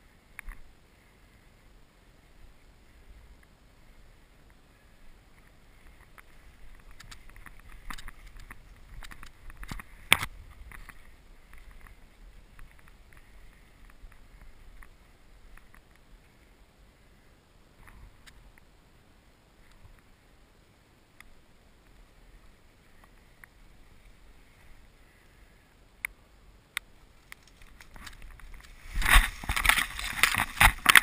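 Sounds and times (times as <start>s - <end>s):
dry grass rustling against person: 0.0s - 31.0s
twigs snapping: 26.8s - 31.0s.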